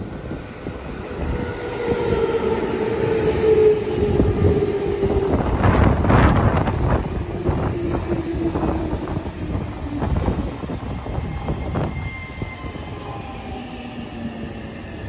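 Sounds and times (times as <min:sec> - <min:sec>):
train rumble: 0:00.0 - 0:11.9
train brakes squealing: 0:05.4 - 0:15.0.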